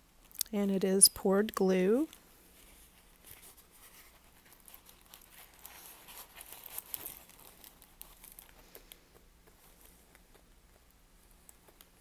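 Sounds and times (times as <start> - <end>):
plastic film crinkling: 1.9 - 10.5.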